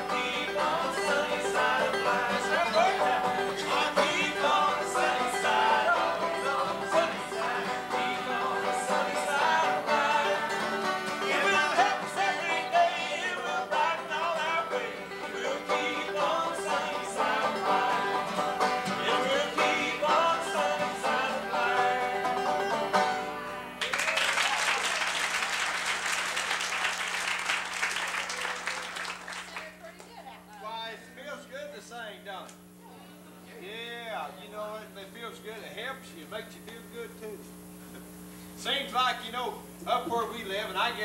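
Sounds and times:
person singing: 0:00.0 - 0:22.6
banjo and acoustic guitar: 0:00.0 - 0:23.7
audience applause: 0:23.8 - 0:30.2.

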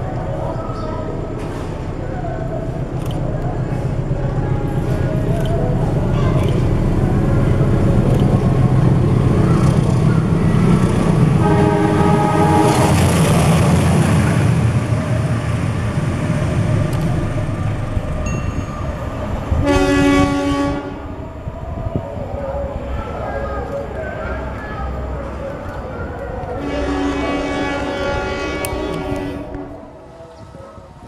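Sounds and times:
freight train rumbling past: 0:00.0 - 0:31.0
locomotive horn blasts: 0:11.4 - 0:13.3, 0:19.6 - 0:21.1, 0:26.6 - 0:30.0.

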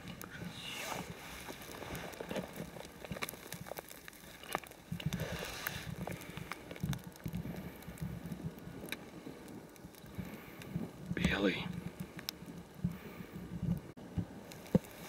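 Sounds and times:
rustling of moss and pine needles: 0:00.0 - 0:12.4, 0:14.4 - 0:15.0.

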